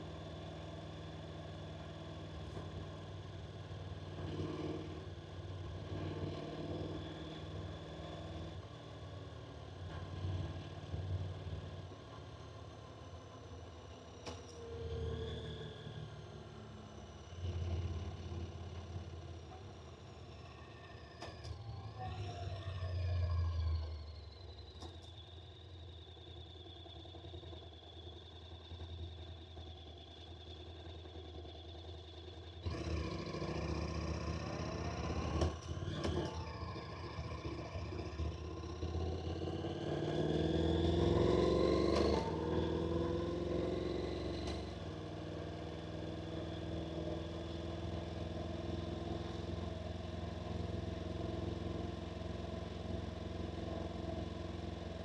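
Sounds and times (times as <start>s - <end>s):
motorcycle engine revving: 32.6s - 55.0s.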